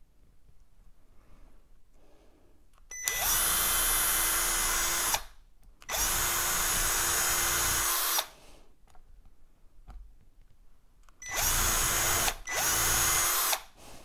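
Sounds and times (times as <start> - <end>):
cordless drill drilling: 3.0 - 5.3, 5.9 - 8.3, 11.2 - 13.7.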